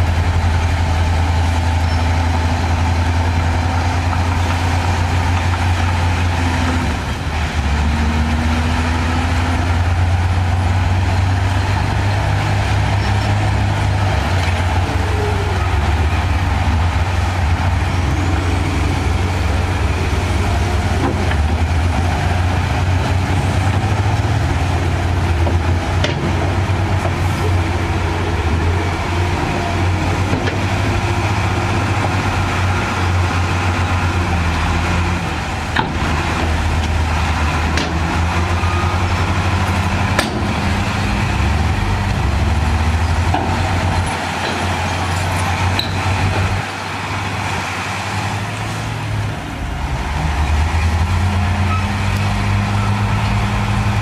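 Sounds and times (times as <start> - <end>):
heavy diesel engines droning: 0.0 - 54.0.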